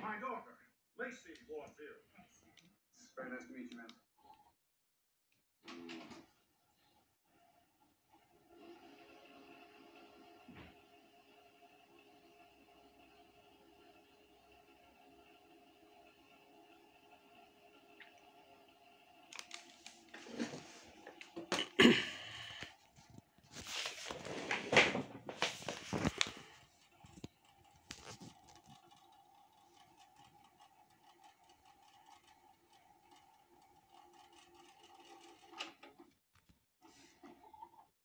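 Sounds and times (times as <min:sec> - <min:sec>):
tape recorder rewinding whir: 0:05.6 - 0:21.6, 0:22.3 - 0:36.2, 0:36.8 - 0:38.0
rustling: 0:22.8 - 0:29.0.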